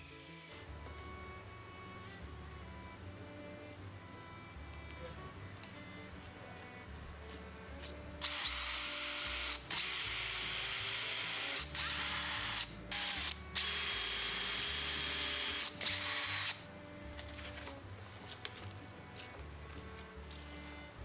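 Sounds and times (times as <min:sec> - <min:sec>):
power drill boring into wood: 0:08.2 - 0:16.6.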